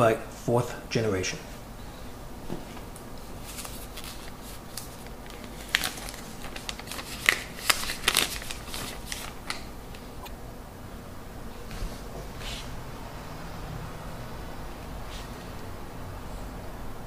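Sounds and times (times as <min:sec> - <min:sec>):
packaging rustling and scraping: 0:03.4 - 0:09.7.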